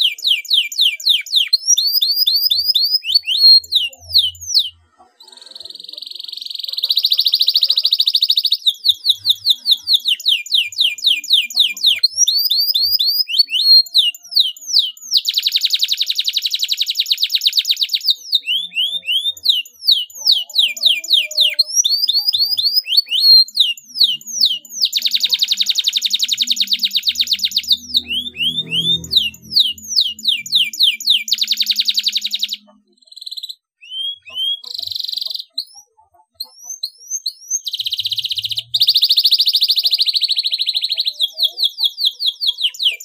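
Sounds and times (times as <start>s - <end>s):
canary singing: 0.0s - 43.0s
fast rolling trills: 26.4s - 31.2s.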